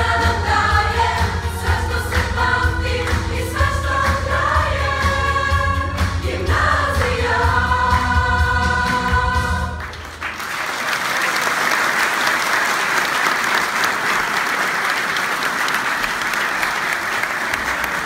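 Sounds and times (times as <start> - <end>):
audience applauding: 9.8 - 18.0.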